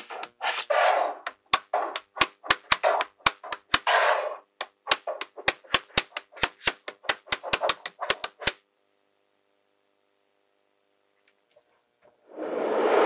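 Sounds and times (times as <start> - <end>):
balls rattling: 0.0 - 8.6
magnetic balls clicking: 0.0 - 8.6.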